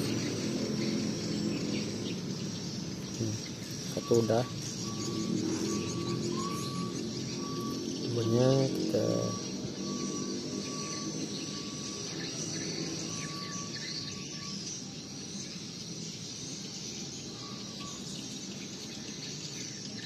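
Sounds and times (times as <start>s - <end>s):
high steady drone: 0.0s - 14.6s.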